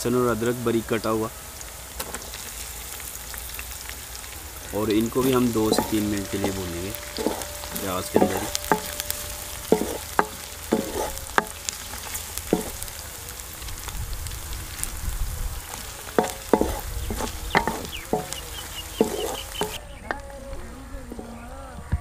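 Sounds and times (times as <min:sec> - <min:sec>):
vegetables sizzling in oil: 0:00.0 - 0:20.6
wooden spatula knocking on pot: 0:04.8 - 0:13.0, 0:16.1 - 0:20.2.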